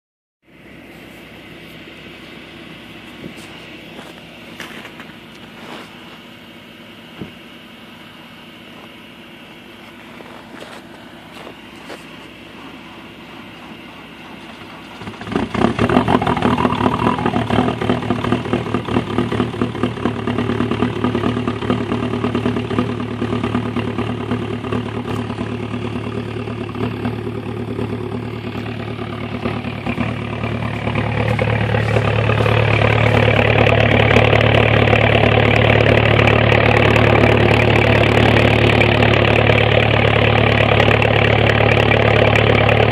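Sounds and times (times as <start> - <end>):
diesel engine starting and clattering: 2.0 - 42.9.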